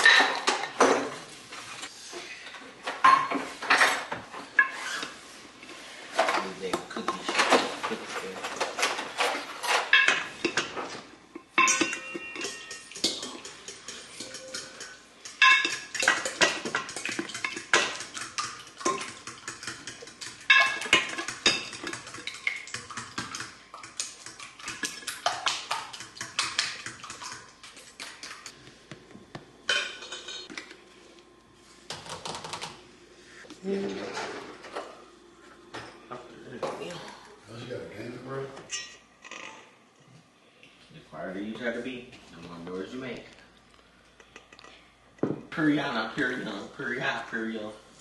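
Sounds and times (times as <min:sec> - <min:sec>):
metal utensils clinking on dishes: 0:06.2 - 0:27.4, 0:29.7 - 0:30.5.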